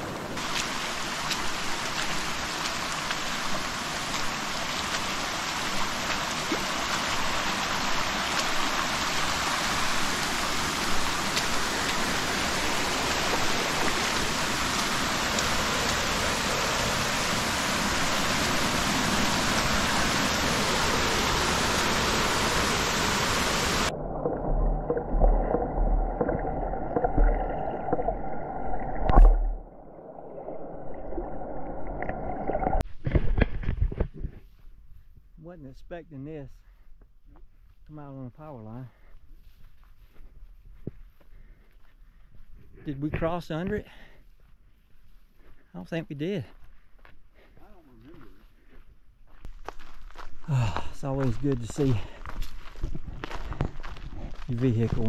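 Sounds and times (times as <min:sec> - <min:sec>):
creek water rushing over rock: 0:00.0 - 0:32.8
low thumps: 0:23.9 - 0:28.2.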